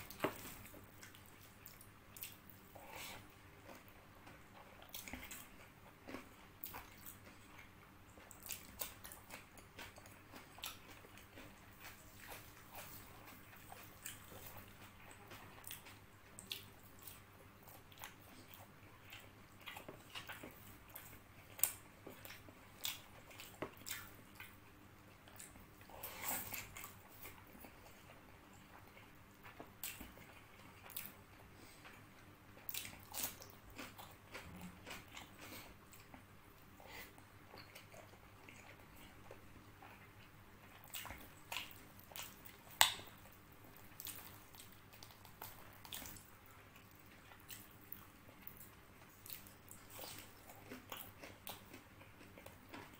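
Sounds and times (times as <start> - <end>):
chewing and mouth smacks: 0.0 - 52.9
wet squishing of fried chicken: 39.8 - 52.9.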